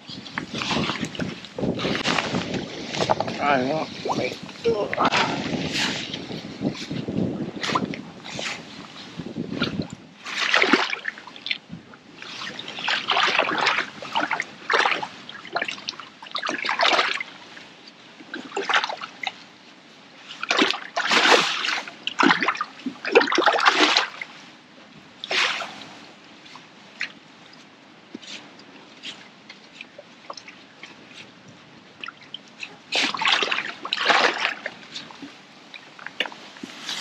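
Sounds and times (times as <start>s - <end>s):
water splashing and sloshing: 0.0s - 37.0s
water trickles and drips: 29.5s - 36.5s.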